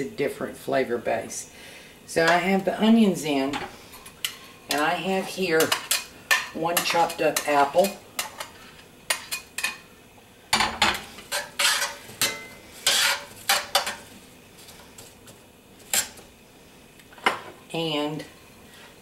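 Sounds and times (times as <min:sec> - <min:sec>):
metal tongs scraping a skillet: 0:03.4 - 0:09.8, 0:10.8 - 0:14.1, 0:15.8 - 0:16.3.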